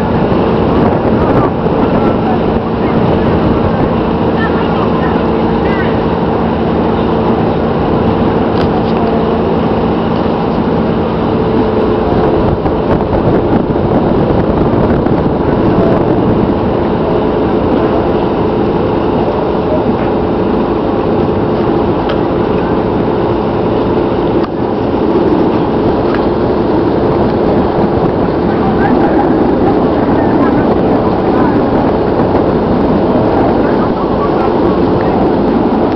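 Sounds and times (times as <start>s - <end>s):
boat engine drone: 0.0s - 35.9s
low hum: 0.0s - 35.9s
water noise: 0.0s - 35.9s
wind: 0.0s - 35.9s.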